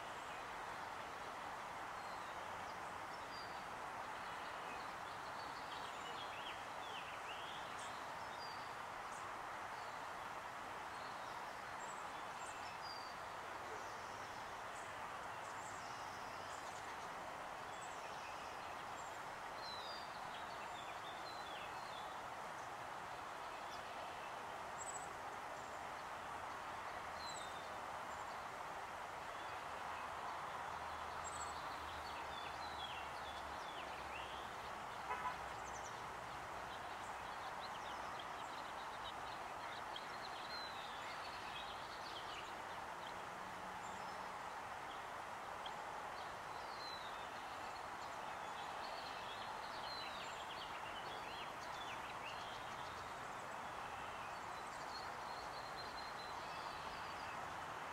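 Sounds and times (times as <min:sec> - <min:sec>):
steady background hiss: 0:00.0 - 0:57.9
small birds chirping: 0:29.4 - 0:57.6.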